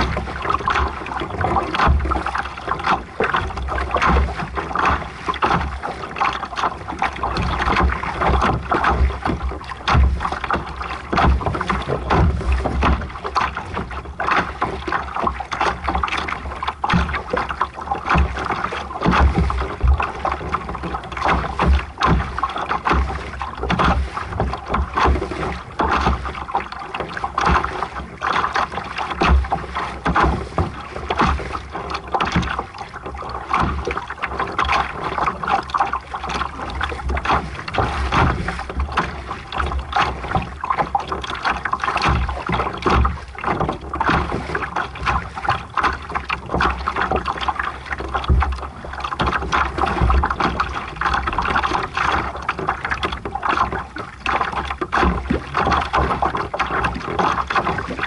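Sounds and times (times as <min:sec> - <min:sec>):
water splashing against hull: 0:00.0 - 0:58.0.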